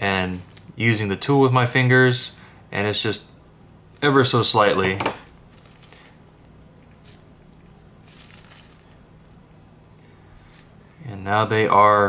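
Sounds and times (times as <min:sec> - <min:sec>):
low steady hum: 0:00.0 - 0:12.0
soft rustle: 0:05.2 - 0:12.0.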